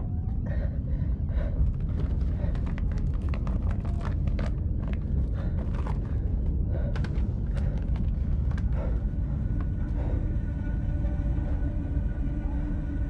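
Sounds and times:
low rumble: 0.0s - 13.0s.

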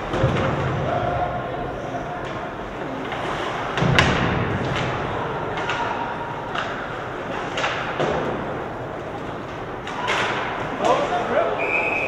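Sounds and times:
ice rink crowd noise: 0.0s - 12.0s
hockey sticks clacking on puck: 2.2s - 11.4s.

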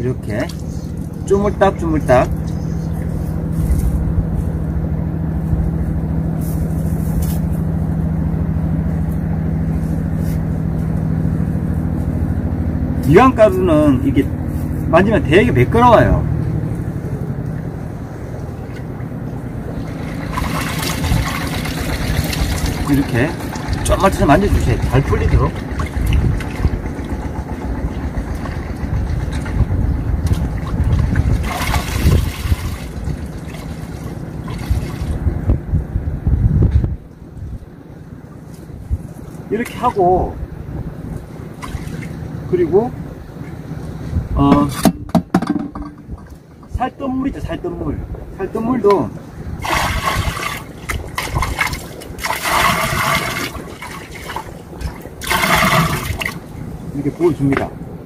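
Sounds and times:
wind rumbling on microphone: 0.0s - 58.0s
splashy swish: 19.7s - 23.3s, 30.4s - 35.3s, 49.6s - 56.5s.

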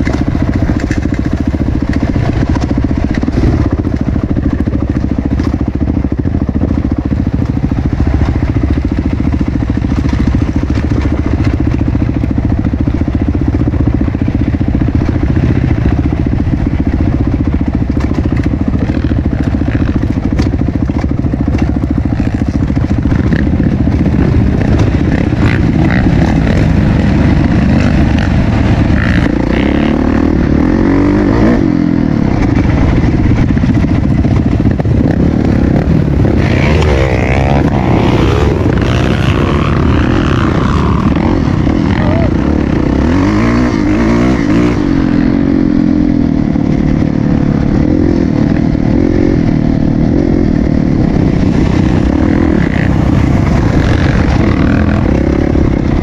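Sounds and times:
clicks and clatter: 0.0s - 5.7s, 9.8s - 12.5s, 17.8s - 28.4s
dirt bike engine revving: 0.0s - 56.0s.

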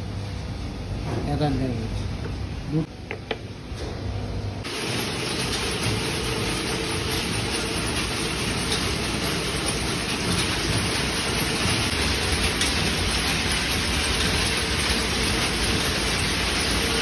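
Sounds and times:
wire-winding machinery running: 4.6s - 17.0s.

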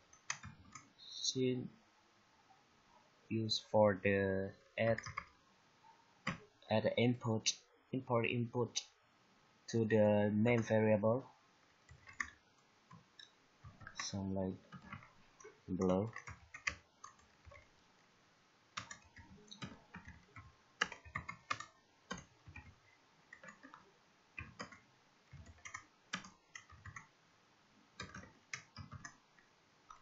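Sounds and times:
keyboard typing: 0.0s - 1.0s, 4.8s - 5.4s, 6.2s - 6.5s, 11.6s - 17.8s, 18.8s - 27.1s, 28.0s - 30.0s.

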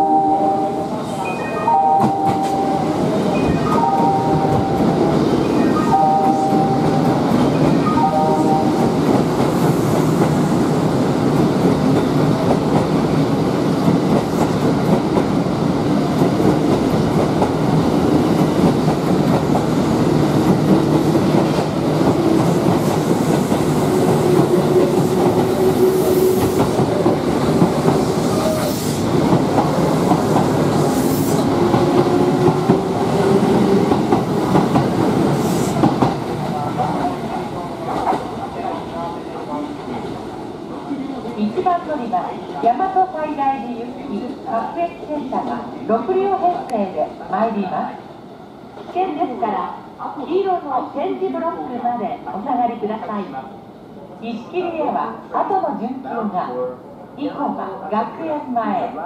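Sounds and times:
two-note electronic chime: 7.7s - 8.9s
electric train wheels clacking: 11.2s - 37.2s.

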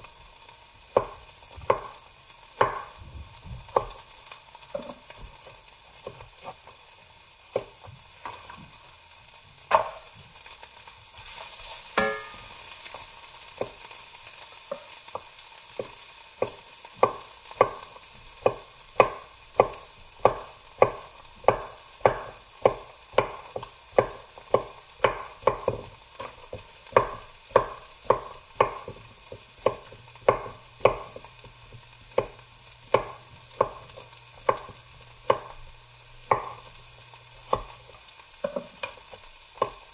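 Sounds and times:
knife chopping on wooden board: 1.0s - 2.0s, 2.6s - 3.0s, 3.6s - 4.0s, 6.0s - 6.6s, 7.5s - 8.6s, 9.7s - 10.0s, 14.7s - 35.6s, 36.2s - 36.7s, 37.4s - 37.8s, 38.4s - 39.0s, 39.6s - 39.8s.

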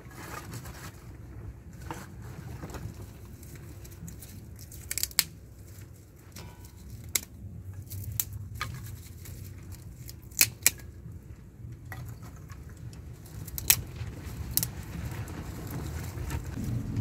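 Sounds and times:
low steady rumble: 0.0s - 17.0s
twigs snapping: 3.3s - 11.0s, 13.2s - 14.9s.

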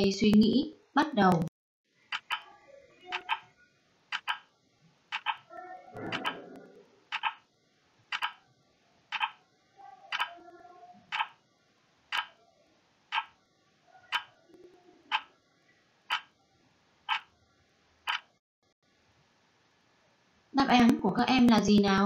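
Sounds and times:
clock ticking: 2.1s - 2.5s, 3.1s - 3.5s, 4.1s - 4.5s, 5.1s - 6.5s, 7.1s - 7.5s, 8.1s - 8.4s, 9.1s - 9.4s, 10.1s - 10.4s, 11.1s - 11.4s, 12.1s - 12.4s, 13.1s - 13.4s, 14.1s - 14.3s, 15.1s - 15.3s, 16.1s - 16.3s, 17.1s - 17.3s, 18.1s - 18.3s.

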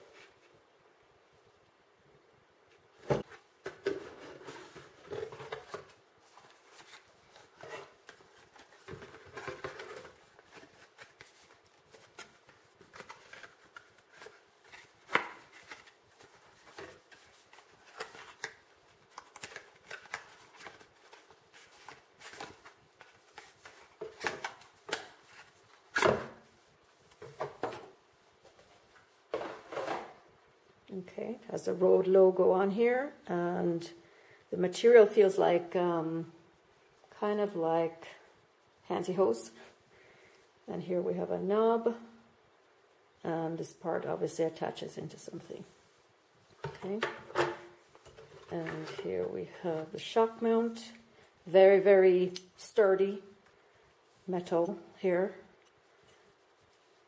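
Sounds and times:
cardboard rustling and bending: 3.0s - 30.2s, 46.6s - 49.3s.

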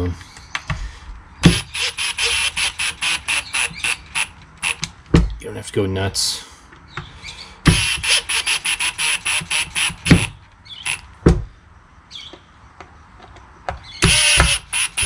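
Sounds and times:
impact driver hammering: 1.4s - 4.0s, 7.7s - 11.5s, 14.0s - 15.0s
motor whine: 14.0s - 15.0s.

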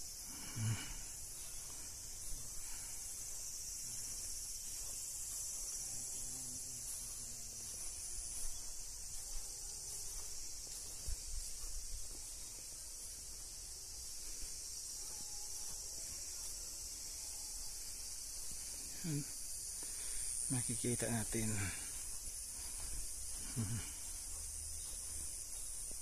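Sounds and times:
insects singing: 0.0s - 26.0s.

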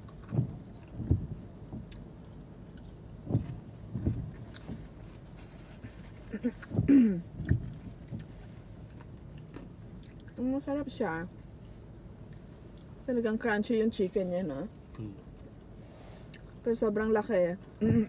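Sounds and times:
soft low thumps: 0.0s - 11.4s, 17.8s - 18.0s.

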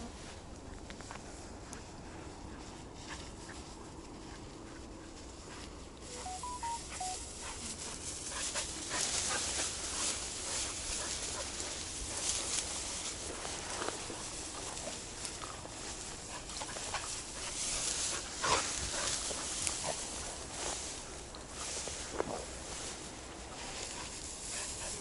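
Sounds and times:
stems swishing and crackling: 0.0s - 25.0s
footsteps through tall grass: 0.2s - 25.0s
short electronic beeps: 6.1s - 7.4s.

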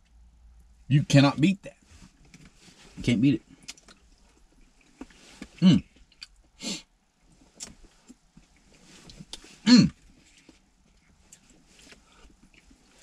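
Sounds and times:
man clearing throat and coughing: 5.6s - 5.9s, 9.6s - 10.0s.

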